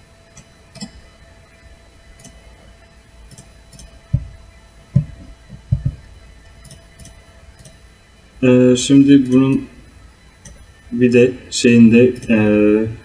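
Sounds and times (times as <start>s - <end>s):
dull low thumps: 4.0s - 6.2s
computer mouse clicks: 6.6s - 7.8s.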